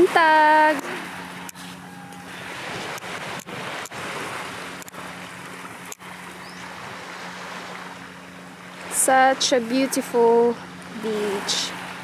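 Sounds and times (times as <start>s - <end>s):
small waves hissing on a beach: 0.0s - 12.0s.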